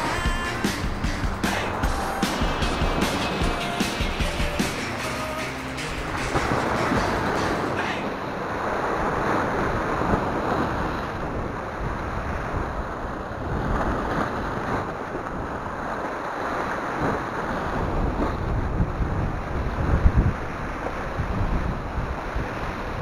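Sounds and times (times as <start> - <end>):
waves breaking on rocks: 0.0 - 23.0
wind buffeting microphone: 6.1 - 23.0.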